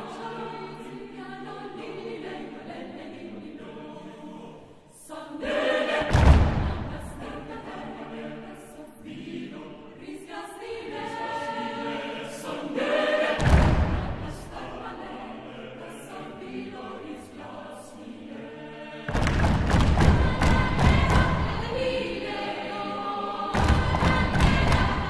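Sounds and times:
mixed choir singing a cappella: 0:00.0 - 0:25.0.

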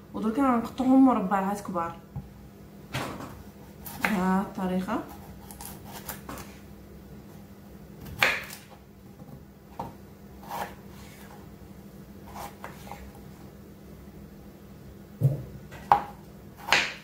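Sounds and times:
knife cutting potatoes on board: 0:03.1 - 0:04.4, 0:05.0 - 0:06.6, 0:08.0 - 0:11.4, 0:12.2 - 0:13.2, 0:15.7 - 0:17.0.

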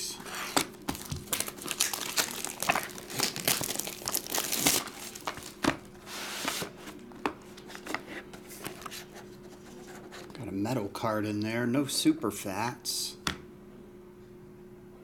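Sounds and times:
plastic wrap crackling: 0:00.6 - 0:05.9.

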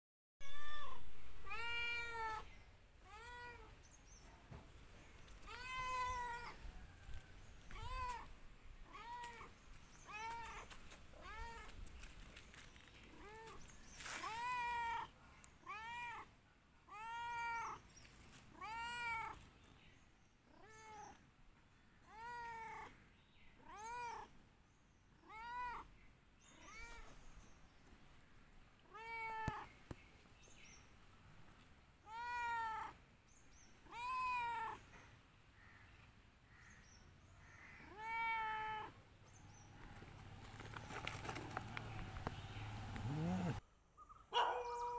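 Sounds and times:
cat meowing: 0:00.4 - 0:02.5, 0:05.5 - 0:06.6, 0:10.1 - 0:11.7, 0:16.9 - 0:17.8, 0:18.5 - 0:19.4, 0:23.6 - 0:24.3, 0:25.2 - 0:25.9, 0:28.9 - 0:29.7, 0:33.9 - 0:34.8, 0:37.8 - 0:39.0.

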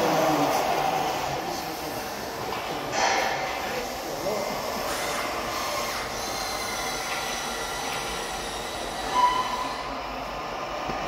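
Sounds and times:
small electric motors whining: 0:04.9 - 0:09.8.

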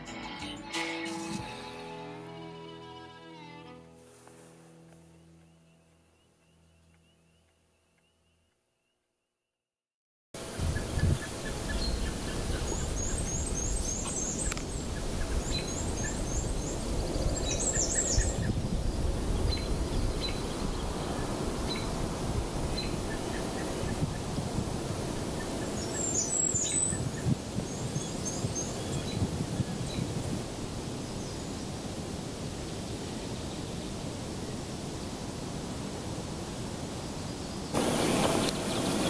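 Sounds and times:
small birds singing: 0:10.4 - 0:22.0, 0:22.6 - 0:24.4, 0:25.0 - 0:30.2, 0:37.1 - 0:39.0.

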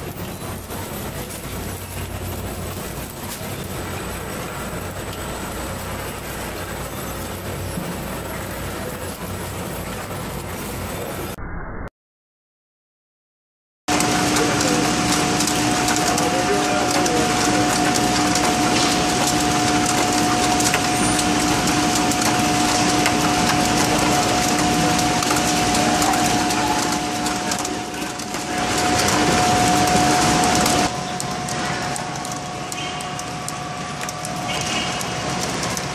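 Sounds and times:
conveyor machinery din: 0:00.0 - 0:11.4, 0:13.9 - 0:35.9
two-tone motor hum: 0:13.9 - 0:35.9.

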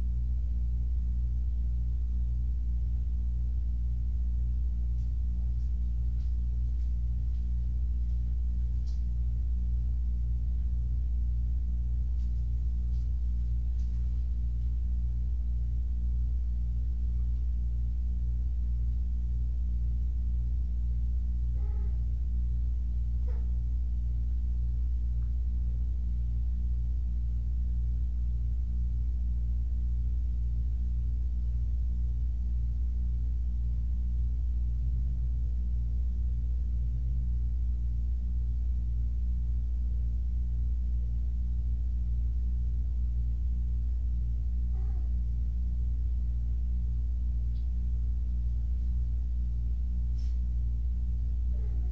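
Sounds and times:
low pulsing hum: 0:00.0 - 0:51.9
faint kitten mews: 0:21.5 - 0:22.1, 0:44.7 - 0:45.3, 0:51.5 - 0:51.9.

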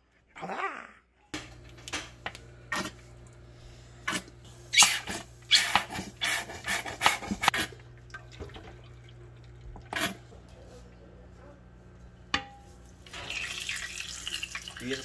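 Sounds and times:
oil glugging and splashing into pan: 0:07.5 - 0:10.3, 0:13.0 - 0:15.0.

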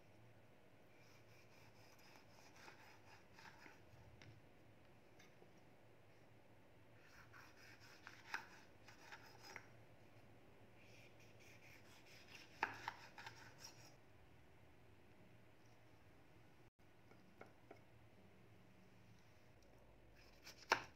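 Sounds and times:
knife slicing tomato on board: 0:01.0 - 0:03.8, 0:07.0 - 0:09.7, 0:10.8 - 0:13.9, 0:20.2 - 0:20.9.

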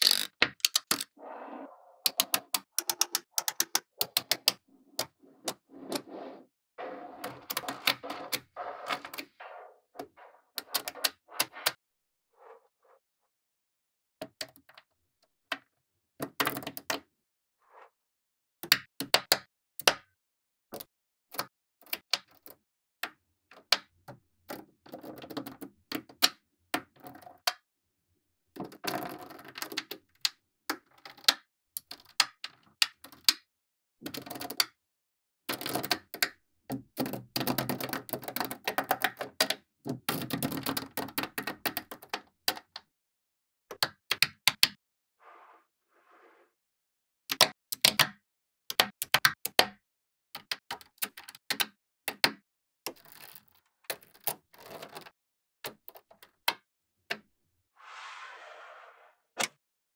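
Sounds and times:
magnetic balls clicking together: 0:00.0 - 0:01.1.

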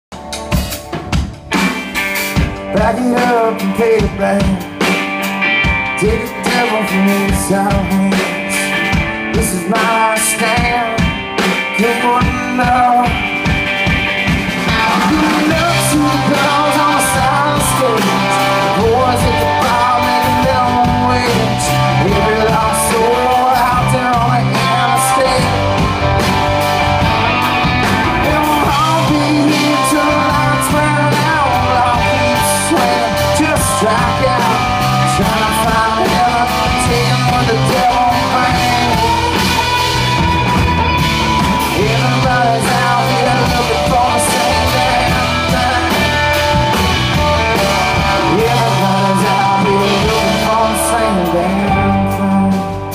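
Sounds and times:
drum kit: 0:00.1 - 0:52.9
electric bass: 0:00.1 - 0:52.9
electric guitars: 0:00.1 - 0:52.9
man singing: 0:02.6 - 0:13.8, 0:14.6 - 0:26.3, 0:27.0 - 0:52.9.

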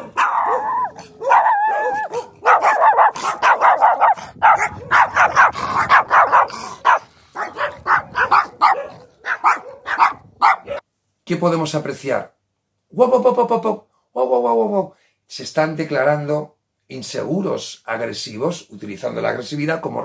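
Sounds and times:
small dogs barking: 0:00.0 - 0:10.8.

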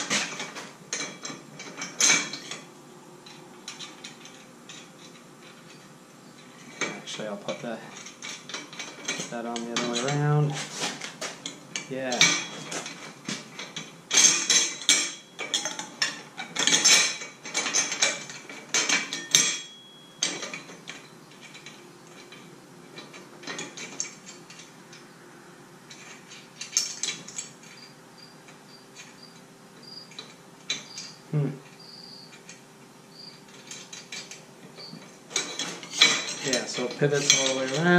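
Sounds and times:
aluminum tubing clanking: 0:00.0 - 0:25.0, 0:33.2 - 0:37.9.

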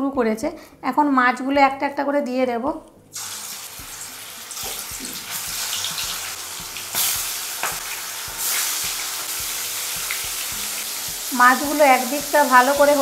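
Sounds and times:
fish sizzling in hot oil: 0:03.2 - 0:13.0
pops and spits of frying fish: 0:03.2 - 0:13.0.

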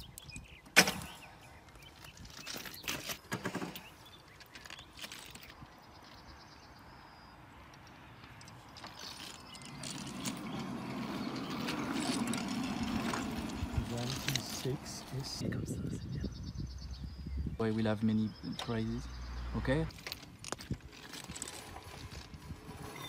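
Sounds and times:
trolley wheels rumbling on rails: 0:08.8 - 0:15.4.

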